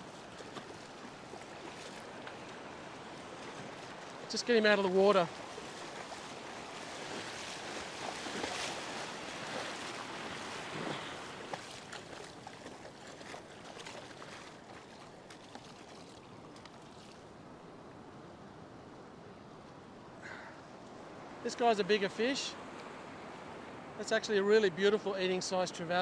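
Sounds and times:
fish splashing in shallow water: 0:00.0 - 0:04.3, 0:05.3 - 0:17.3
small waves washing: 0:00.0 - 0:18.7.

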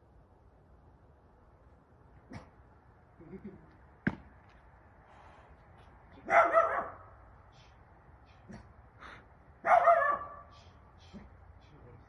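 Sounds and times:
dog barking: 0:06.2 - 0:07.1, 0:09.6 - 0:10.5.

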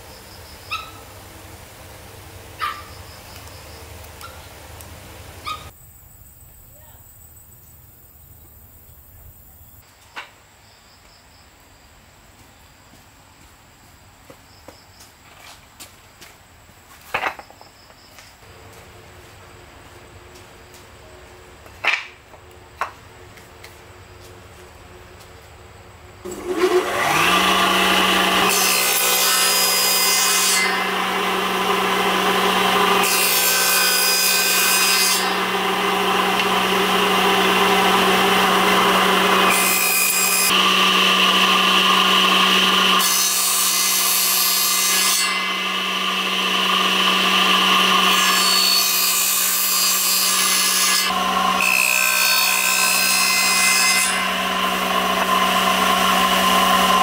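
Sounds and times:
power tool motor humming: 0:26.3 - 0:44.7, 0:45.3 - 0:48.4, 0:50.6 - 0:53.2, 0:54.2 - 0:57.0
power tool cutting wood: 0:26.3 - 0:57.0.

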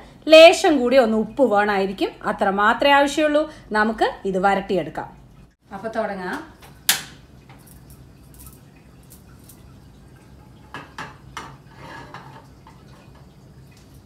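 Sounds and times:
frying pan knocking on burner grate: 0:10.6 - 0:11.6.

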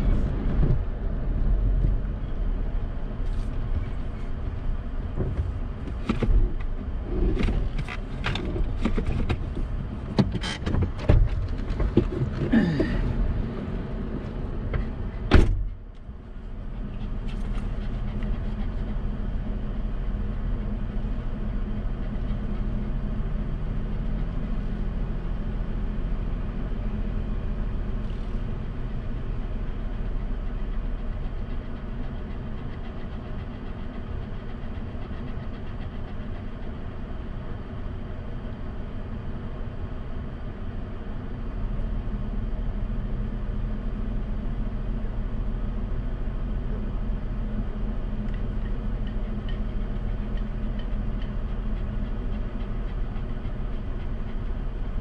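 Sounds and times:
truck engine idling: 0:45.0 - 0:55.0.

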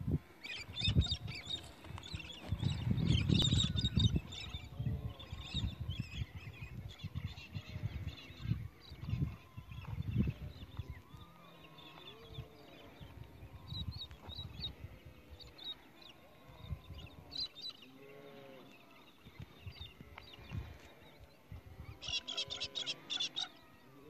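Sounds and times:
wind rumble on microphone: 0:00.0 - 0:11.3, 0:12.2 - 0:15.5, 0:16.5 - 0:17.4
birds chirping: 0:00.1 - 0:24.0.

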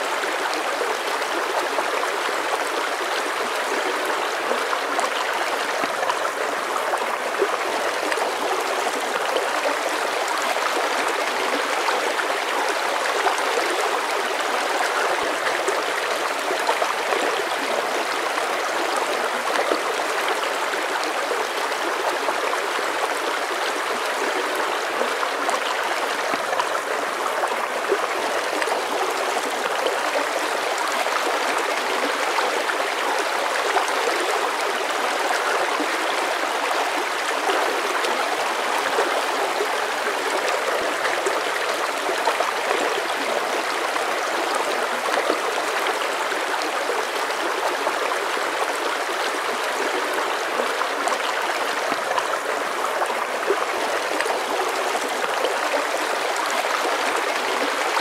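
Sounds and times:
stream running over rocks: 0:00.0 - 0:58.0.

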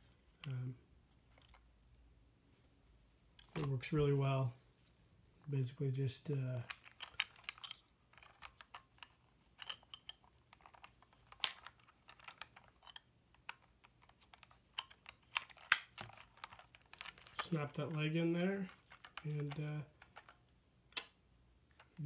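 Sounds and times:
sharp plastic snaps: 0:20.9 - 0:22.0.

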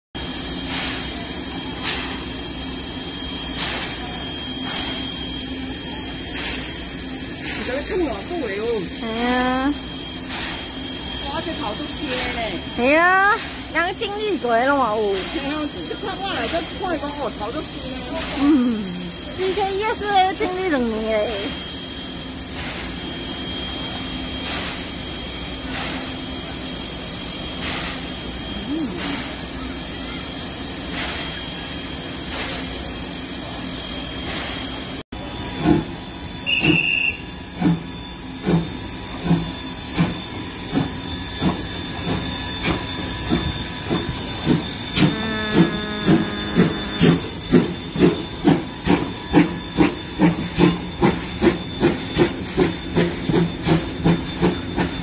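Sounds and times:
steady steam hiss: 0:00.2 - 0:23.6
steam locomotive hissing: 0:00.2 - 0:55.0
steady low hum: 0:43.6 - 0:48.3.

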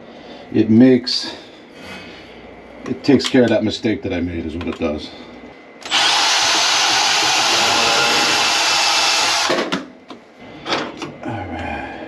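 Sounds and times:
cordless power tool running: 0:05.8 - 0:09.8.

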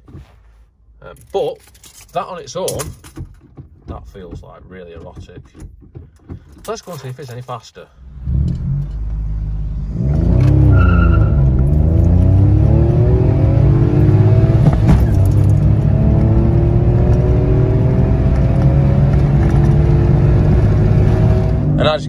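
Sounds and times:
car engine revving and accelerating: 0:08.1 - 0:22.0.

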